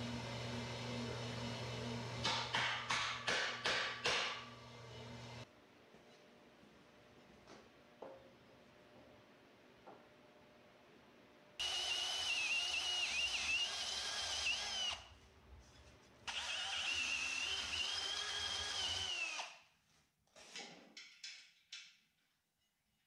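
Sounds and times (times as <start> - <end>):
power drill boring through steel: 11.6 - 15.0, 16.3 - 19.6.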